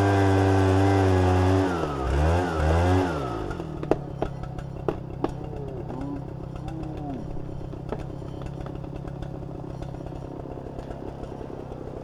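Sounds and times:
chainsaw cutting wood: 0.0s - 12.0s.

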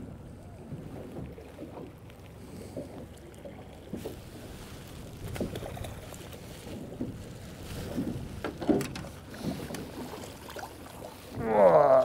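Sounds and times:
water lapping against boat hull: 0.0s - 12.0s
wind on microphone: 4.1s - 10.2s.

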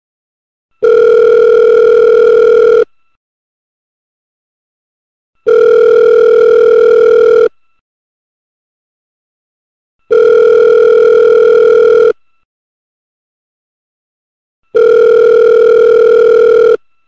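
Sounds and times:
telephone ringing: 0.8s - 2.8s, 5.4s - 7.5s, 10.1s - 12.2s, 14.7s - 16.8s.

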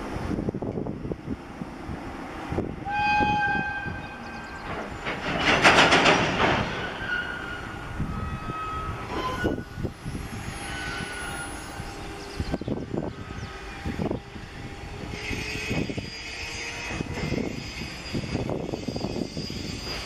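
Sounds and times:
freight train rumble and rattle: 0.0s - 20.0s.

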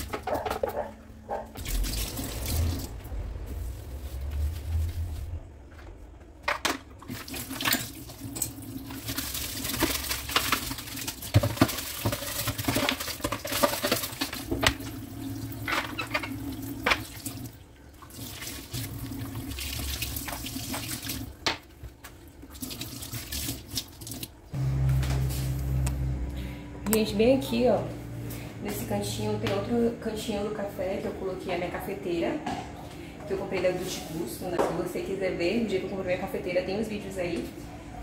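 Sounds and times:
tap water running into sink: 14.0s - 21.6s.

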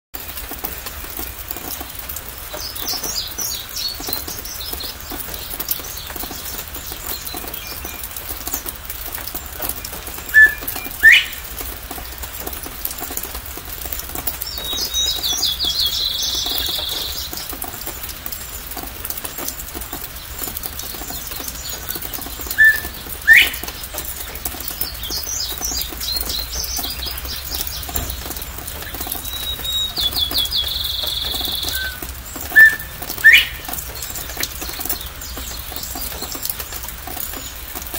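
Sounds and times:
rain patter: 0.1s - 37.9s
bird whistling call: 10.3s - 11.5s, 22.5s - 23.6s, 29.2s - 33.7s.

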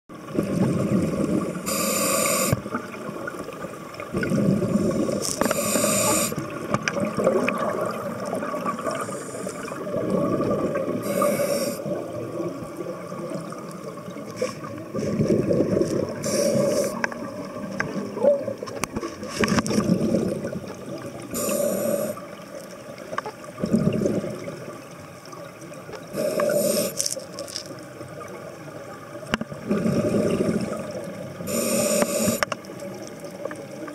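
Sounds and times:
exhaled air bubbling: 0.1s - 33.9s
scuba regulator inhale hiss: 1.6s - 2.6s, 4.9s - 6.4s, 8.9s - 9.8s, 11.0s - 11.9s, 16.2s - 17.0s, 21.3s - 22.2s, 26.1s - 27.2s, 31.4s - 32.5s.

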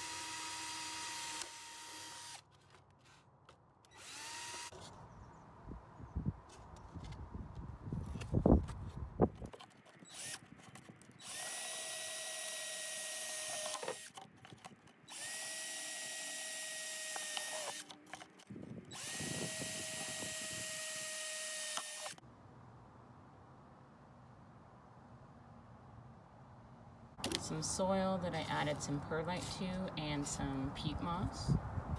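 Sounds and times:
cordless drill drilling plastic: 0.0s - 3.2s, 3.9s - 4.8s, 10.0s - 22.2s.

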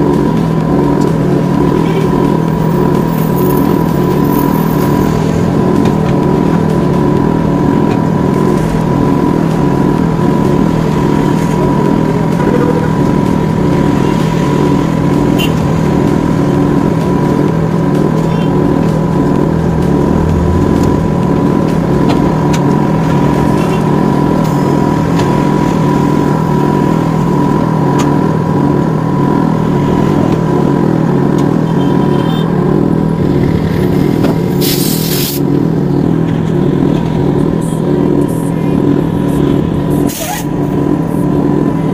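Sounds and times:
machine drone: 0.0s - 41.9s
compressed air hiss: 34.6s - 35.4s.

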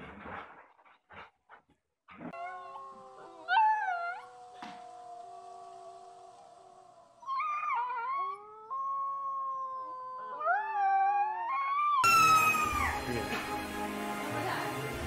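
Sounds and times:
adult dog howling: 2.3s - 13.0s
puppy howling: 2.3s - 13.1s.

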